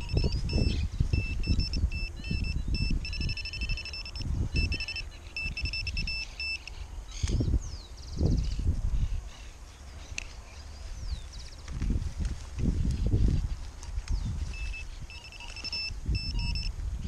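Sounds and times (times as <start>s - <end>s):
metal detector beeping: 0.0s - 7.3s, 14.5s - 16.8s.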